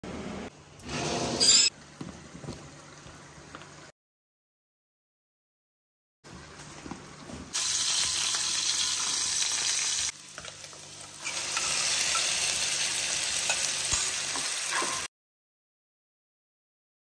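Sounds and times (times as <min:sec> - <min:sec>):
food sizzling in a pan: 0:07.5 - 0:15.1.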